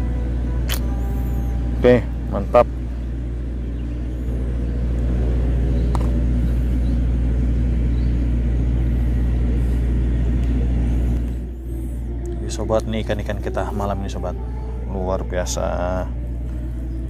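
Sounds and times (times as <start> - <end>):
engine rumbling: 0.0 - 17.0
sharp click: 0.7 - 0.9.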